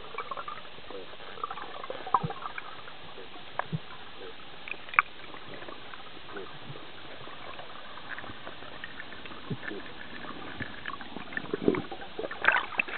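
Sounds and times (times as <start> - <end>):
crackles: 0.0 - 12.9
small clicks and pops: 4.6 - 5.2.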